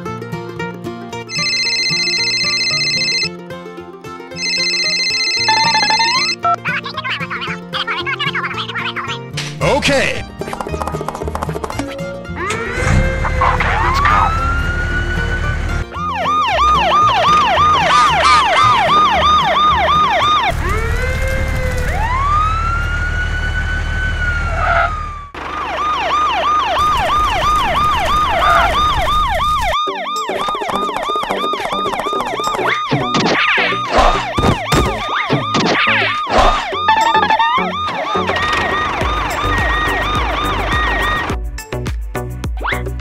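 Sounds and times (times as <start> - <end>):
siren wailing and yelping: 4.6 - 6.5, 12.4 - 41.3.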